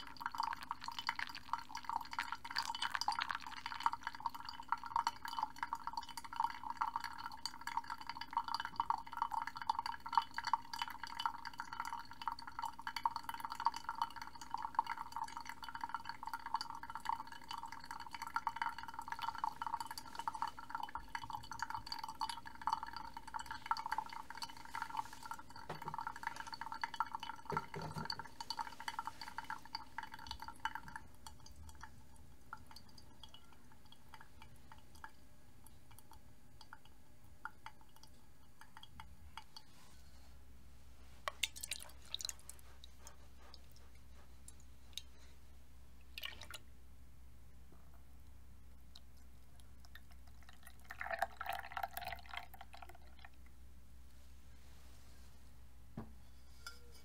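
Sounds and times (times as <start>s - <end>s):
water pouring onto coffee grounds: 0.0s - 31.9s, 41.3s - 42.5s, 49.8s - 53.3s.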